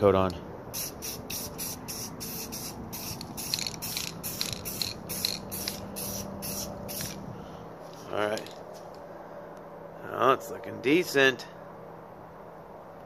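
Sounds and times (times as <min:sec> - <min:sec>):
spray paint can hissing bursts: 0:00.7 - 0:07.2.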